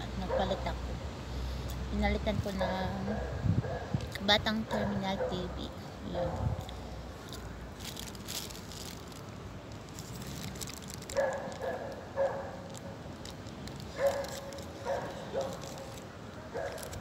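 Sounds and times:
dog barking: 6.1 - 6.5, 11.1 - 12.6, 14.0 - 15.7, 16.5 - 16.9.

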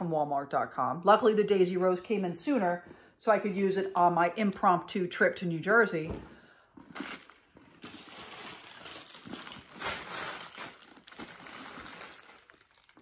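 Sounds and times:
plastic wrap crinkling: 6.9 - 13.0.

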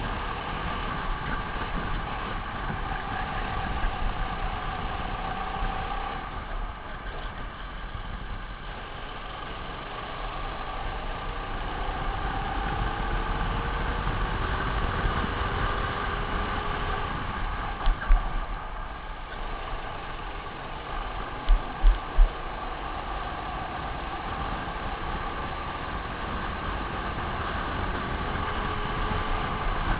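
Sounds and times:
kart engine accelerating: 0.0 - 29.9
low thumps: 21.4 - 22.4.

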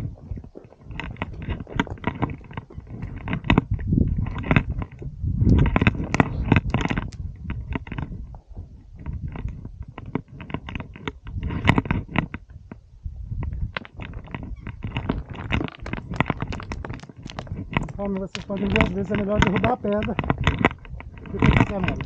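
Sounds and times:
footsteps crunching on loose stones: 0.0 - 22.0
low rumble: 0.0 - 22.0
stones shifting and rolling: 0.0 - 22.0.

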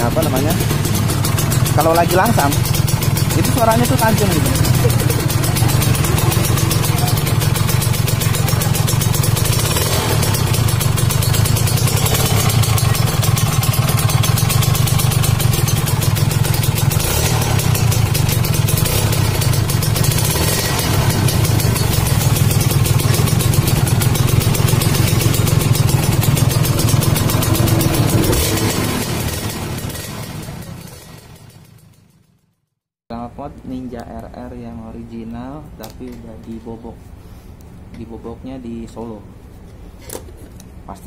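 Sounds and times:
motorcycle engine idling: 0.0 - 32.6.

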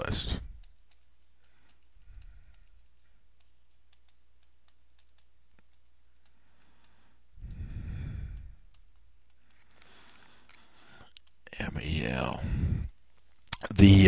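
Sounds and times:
faint clicks: 0.2 - 11.5
person breathing out heavily: 6.4 - 8.7, 12.4 - 13.0.

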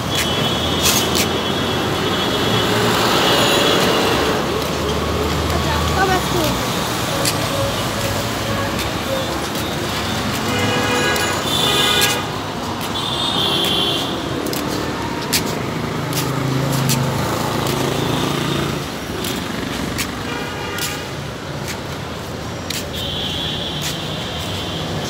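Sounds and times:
traffic running past: 0.0 - 25.0
background voices: 4.1 - 10.3
vehicle horn toots: 10.4 - 12.4.

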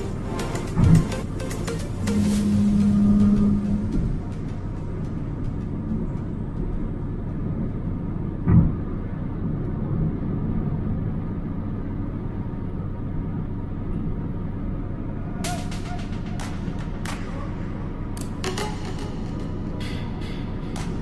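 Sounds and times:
car engine and road rumble: 0.0 - 21.0.

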